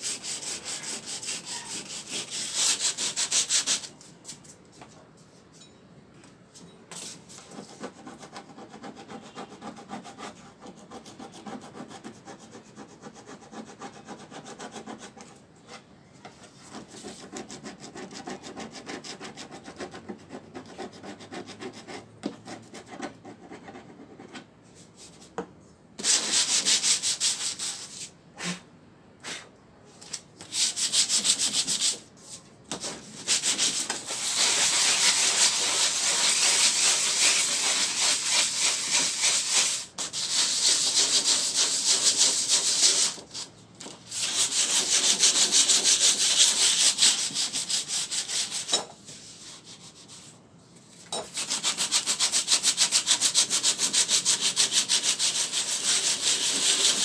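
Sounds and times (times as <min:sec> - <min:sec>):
sandpaper rubbing sheet metal: 0:00.0 - 0:04.0, 0:26.0 - 0:28.1, 0:30.4 - 0:32.0, 0:32.7 - 0:43.5, 0:44.1 - 0:50.3, 0:51.3 - 0:57.0.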